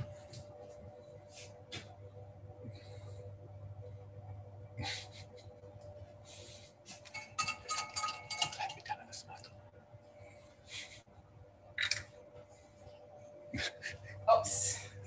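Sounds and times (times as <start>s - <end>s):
steady low hum: 0.0s - 15.0s
utensil clinking against pot: 7.1s - 8.9s.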